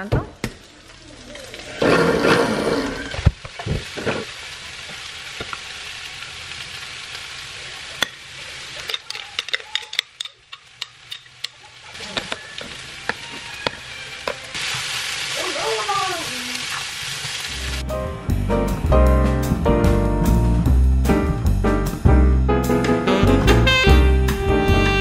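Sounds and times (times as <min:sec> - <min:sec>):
food sizzling in a pan: 0:00.0 - 0:17.8.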